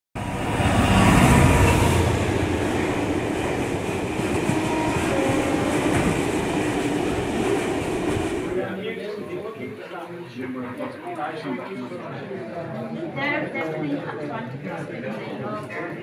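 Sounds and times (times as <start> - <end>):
train rumbling along track: 0.2 - 8.8.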